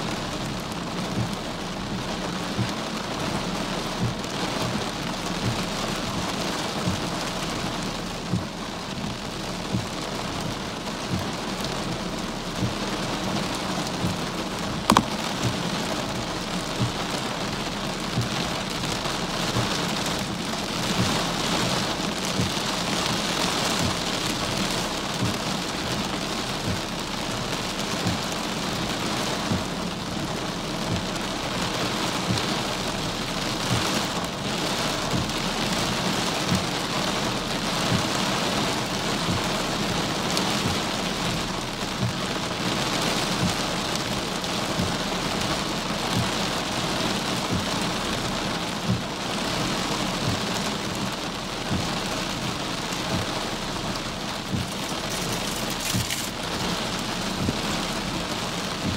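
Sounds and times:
heavy rain on car windshield: 0.0s - 58.9s
raindrops knocking on car body: 0.0s - 58.9s.

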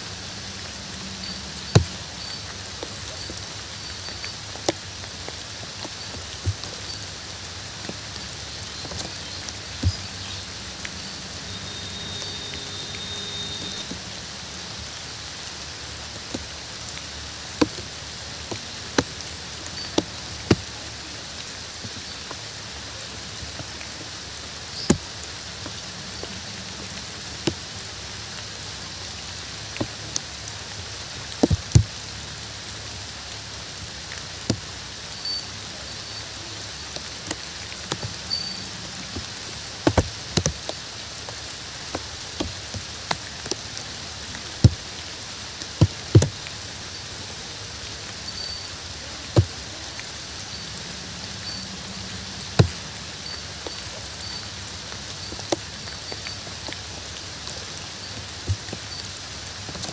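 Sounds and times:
steady rain falling: 0.0s - 59.9s.

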